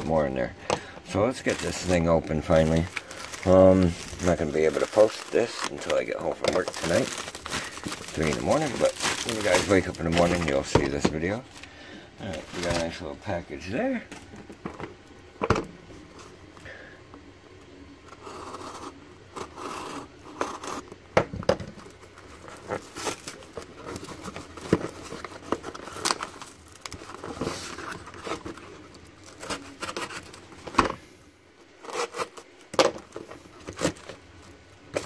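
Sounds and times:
cardboard scraping and tearing: 1.3s - 11.7s, 12.3s - 13.0s, 22.3s - 30.7s, 31.8s - 32.5s.

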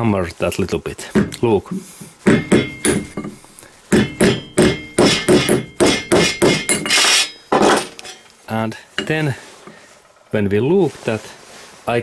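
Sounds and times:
hammer striking nail on metal: 1.2s - 8.0s.

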